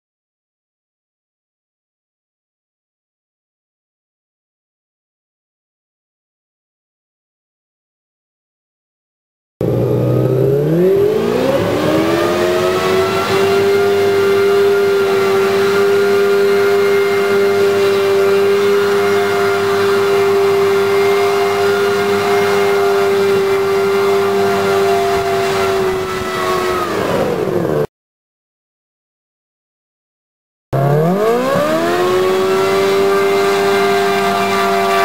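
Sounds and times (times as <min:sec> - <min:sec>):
jetpack fans and engine roaring: 0:09.6 - 0:27.9, 0:30.8 - 0:35.0.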